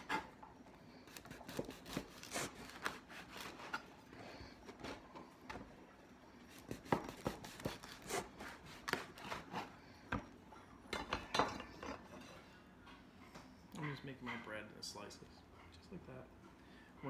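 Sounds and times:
knife sawing through bread roll: 0:01.1 - 0:03.8, 0:06.6 - 0:09.8.

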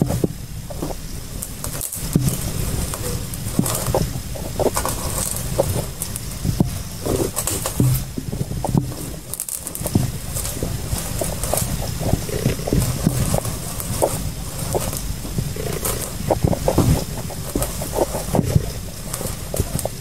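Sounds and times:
carton knocks and rustles: 0:00.0 - 0:20.0
microphone handling rumble: 0:00.0 - 0:20.0.

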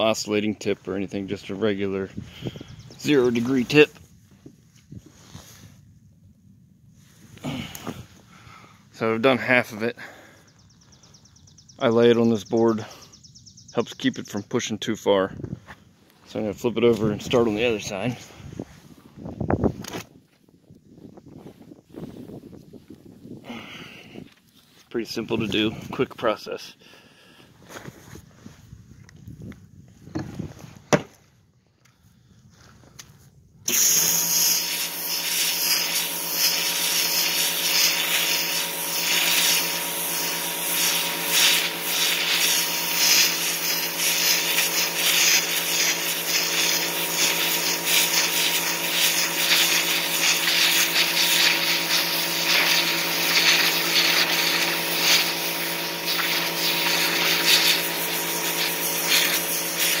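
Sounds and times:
hiss of water jet: 0:33.7 - 1:00.0
pressure washer motor and pump hum: 0:33.7 - 1:00.0.

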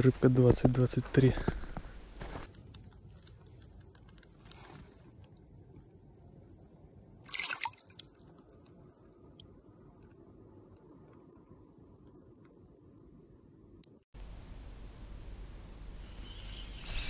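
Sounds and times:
faint water sounds: 0:06.1 - 0:10.2
fish splashing: 0:07.3 - 0:08.4.

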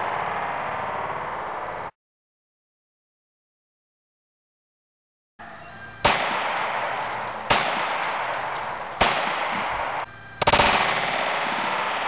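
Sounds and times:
pistol shots: 0:06.0 - 0:12.0.

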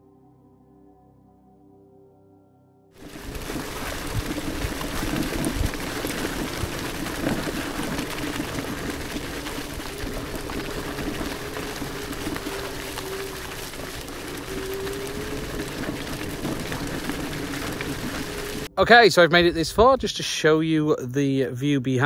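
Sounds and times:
tyres rattling on dirt trail: 0:03.0 - 0:18.7.

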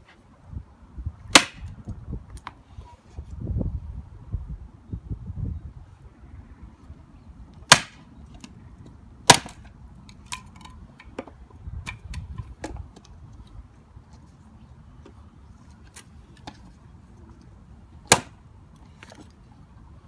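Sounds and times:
chopper blade chopping into wood: 0:01.3 - 0:01.7, 0:07.7 - 0:08.0, 0:09.3 - 0:09.6, 0:18.1 - 0:18.4.

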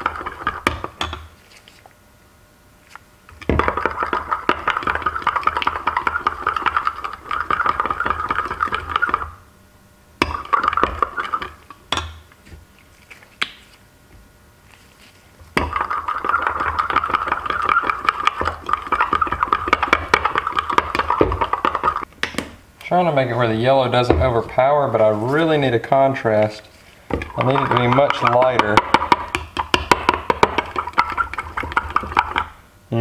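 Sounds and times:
spoon scraping in glass cup: 0:14.7 - 0:22.0, 0:27.2 - 0:28.8, 0:30.6 - 0:32.4.

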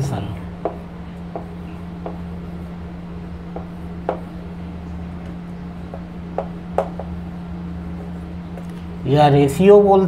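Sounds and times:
steady low hum: 0:00.0 - 0:10.0
writing tool tapping on a board: 0:00.6 - 0:02.3, 0:03.5 - 0:04.3, 0:05.9 - 0:07.2.

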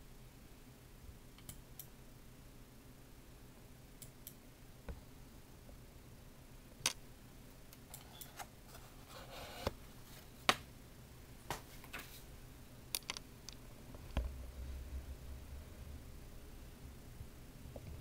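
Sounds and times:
faint small clicks and ticks: 0:01.4 - 0:01.9
low rumble: 0:14.2 - 0:18.0.

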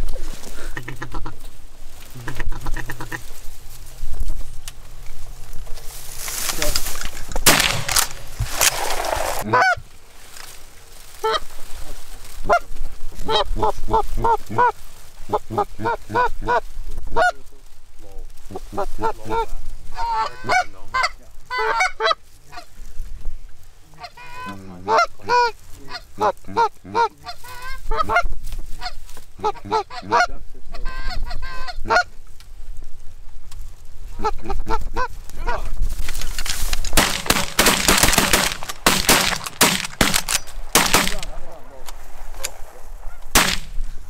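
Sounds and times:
geese honking: 0:02.1 - 0:03.4, 0:07.5 - 0:09.9, 0:11.2 - 0:11.5, 0:12.4 - 0:17.4, 0:18.5 - 0:22.8, 0:23.9 - 0:32.2, 0:36.9 - 0:41.8, 0:42.4 - 0:44.0.

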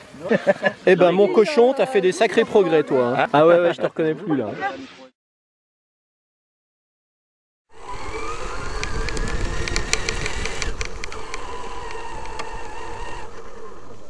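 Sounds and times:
electric motor whine: 0:07.7 - 0:14.0
scattered clicks: 0:08.0 - 0:13.5.

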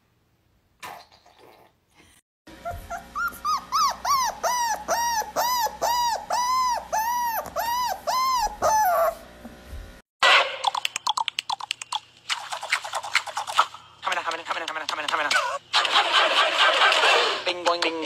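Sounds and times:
puppy whimpering cries: 0:02.5 - 0:09.3.

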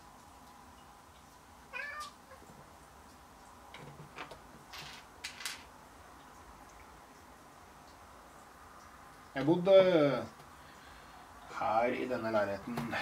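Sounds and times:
cat meowing: 0:01.7 - 0:02.5
plastic bricks clicking: 0:04.1 - 0:05.7.

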